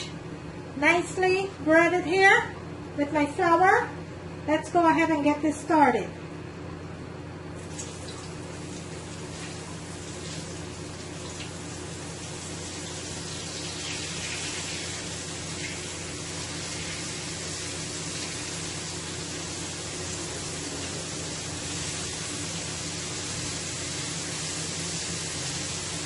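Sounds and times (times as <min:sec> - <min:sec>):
steady low hum: 0:00.0 - 0:26.0
fish sizzling in hot oil: 0:07.7 - 0:26.0.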